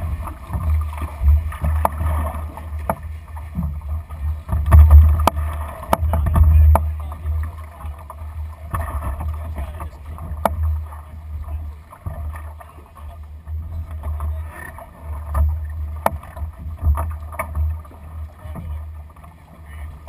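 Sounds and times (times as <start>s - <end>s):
water rushing along a hull: 0.0s - 20.0s.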